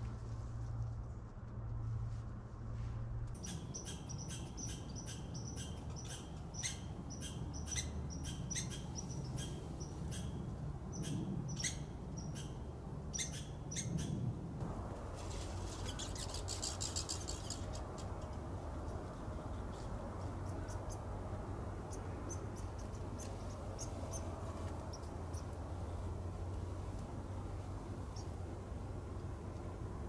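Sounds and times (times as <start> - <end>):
steady low rumble: 0.0 - 30.0.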